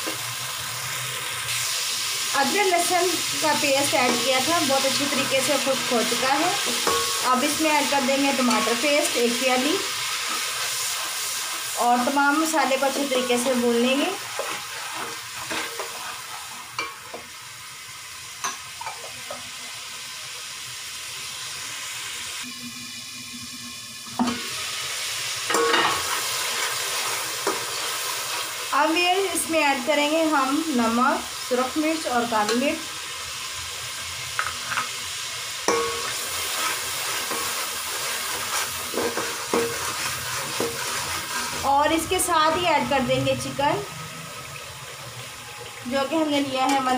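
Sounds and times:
masala sizzling in oil: 0.0s - 46.9s
metal spatula clinking pot: 6.6s - 7.4s, 35.7s - 36.2s.

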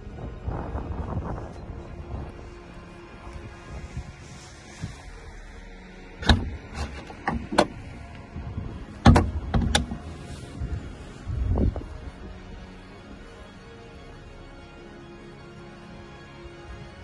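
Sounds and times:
car luggage lid knocks and clunks: 6.2s - 7.8s, 9.0s - 10.0s.

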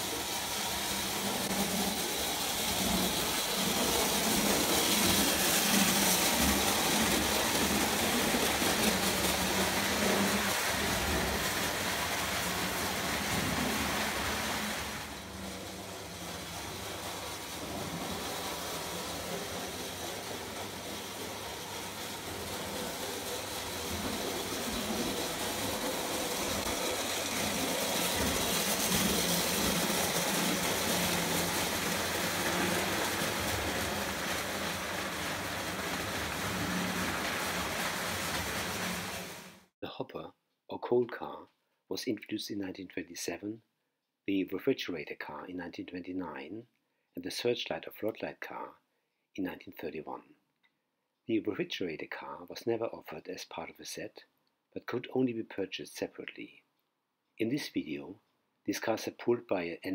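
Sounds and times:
toy train rumbling on track: 0.0s - 39.7s.

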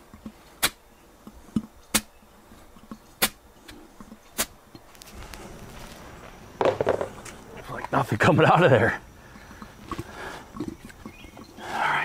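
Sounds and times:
soft rustle of handling: 4.8s - 6.5s
small knocks: 6.6s - 7.4s.

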